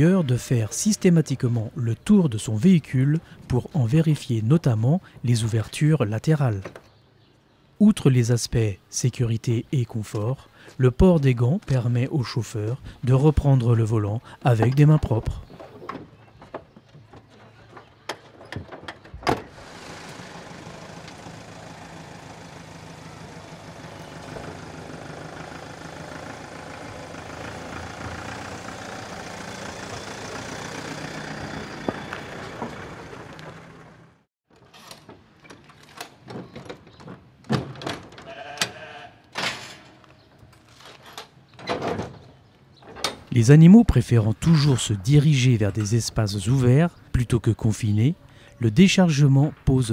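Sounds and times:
truck engine running: 0:19.5 - 0:34.2
metal clanks and knocks: 0:34.6 - 0:38.3, 0:40.9 - 0:43.3
sheep bleating: 0:38.3 - 0:39.3.

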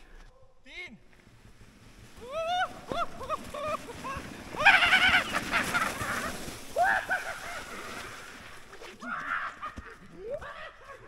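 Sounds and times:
rush of sliding noise: 0:01.1 - 0:09.0
people whooping and shouting: 0:02.2 - 0:07.6.

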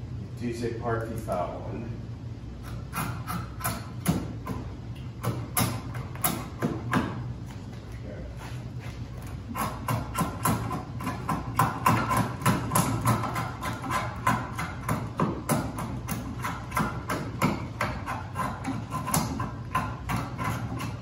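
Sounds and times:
steady low hum: 0:00.0 - 0:21.0
draw knife scraping wood: 0:17.8 - 0:21.0.

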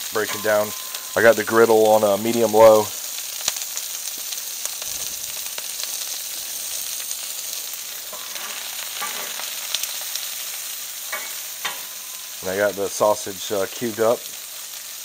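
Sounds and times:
food sizzling on a griddle: 0:00.0 - 0:15.0.

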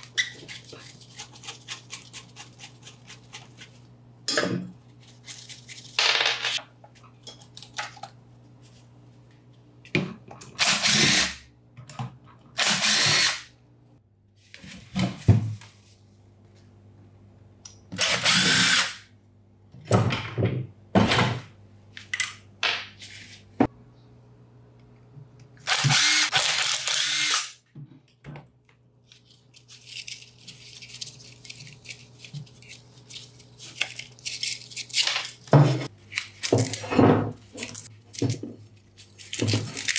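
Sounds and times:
electric power tool bursts: 0:25.7 - 0:27.6.

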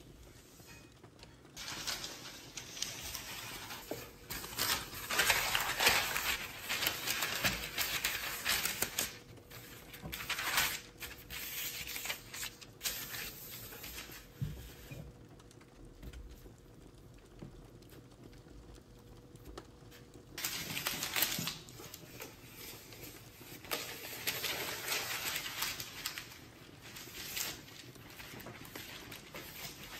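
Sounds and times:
stiff paper rustling: 0:01.6 - 0:14.4, 0:20.4 - 0:29.9.

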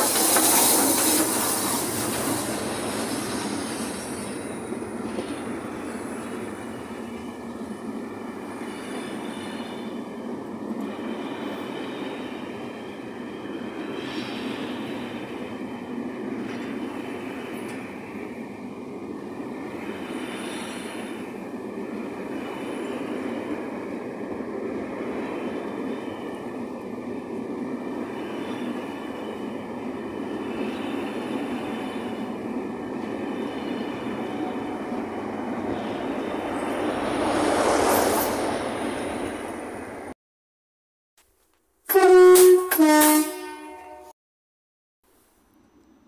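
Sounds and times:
train wheels rumbling on rails: 0:00.0 - 0:40.1
diesel locomotive passing: 0:00.0 - 0:40.2.

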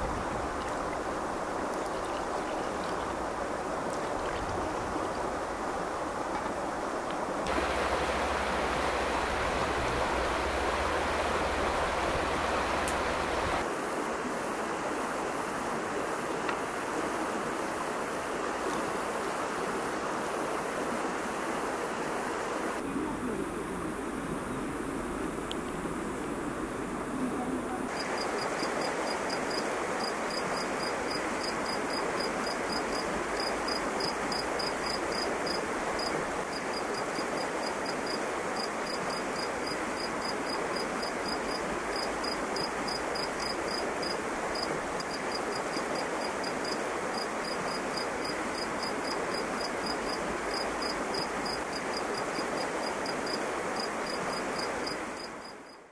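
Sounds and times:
background hiss: 0:00.0 - 0:55.9
cricket chirping: 0:07.5 - 0:13.6, 0:27.9 - 0:55.9.

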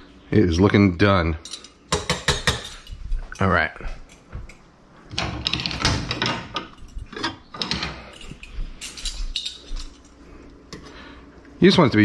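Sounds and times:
metal kitchen utensils clacking: 0:05.2 - 0:10.1.

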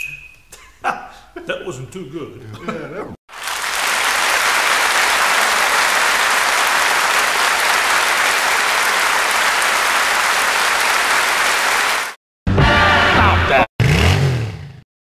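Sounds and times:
crowd applauding: 0:03.3 - 0:12.2.

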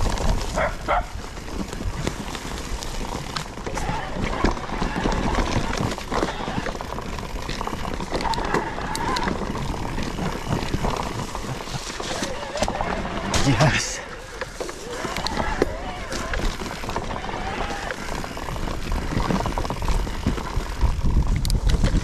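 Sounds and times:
bike knocks and rattles: 0:00.0 - 0:13.6, 0:14.2 - 0:22.0
bike tyres rolling over dirt: 0:00.0 - 0:22.0.

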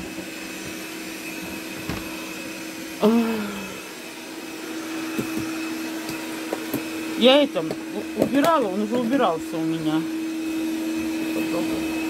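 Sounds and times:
robot vacuum cleaner whirring: 0:00.0 - 0:12.0
person's falling vocal sound: 0:03.0 - 0:03.9.

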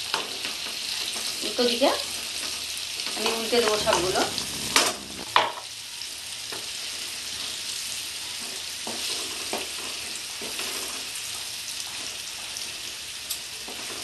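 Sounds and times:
potatoes sizzling in oil: 0:00.0 - 0:14.0
wooden spatula scraping pan: 0:03.3 - 0:05.3.

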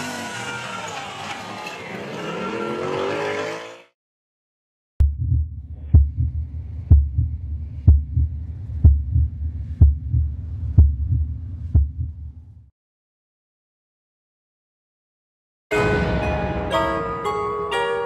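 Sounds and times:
heartbeat thumps: 0:05.0 - 0:12.7
low rumble: 0:05.0 - 0:12.7.

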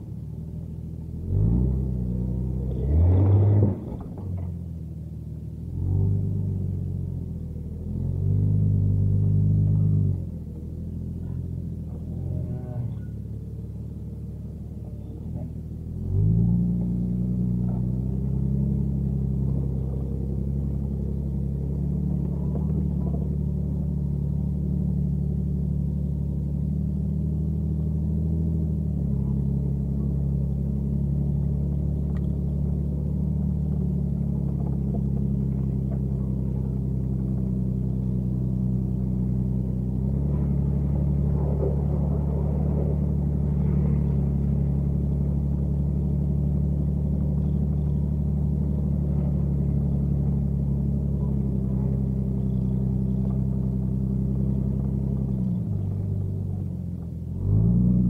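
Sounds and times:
car engine running: 0:00.0 - 0:58.0.

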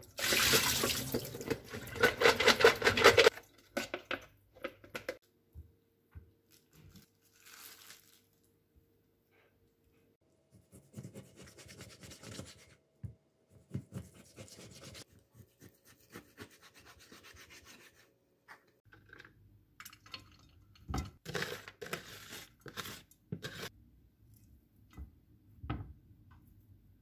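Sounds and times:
bean sprouts rustling: 0:06.5 - 0:08.4.

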